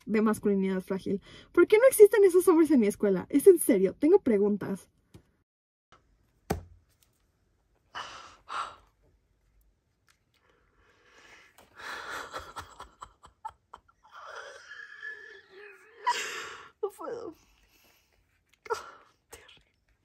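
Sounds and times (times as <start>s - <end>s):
woman breathing heavily: 7.9s - 9.0s, 10.6s - 12.5s
woman gasping and sighing: 14.1s - 16.8s.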